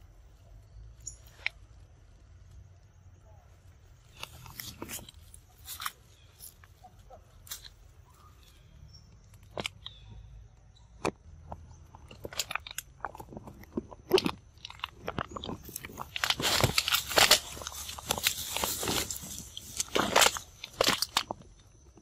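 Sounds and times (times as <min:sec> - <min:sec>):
monkeys chewing vine stems: 0:03.9 - 0:10.0, 0:11.0 - 0:22.0.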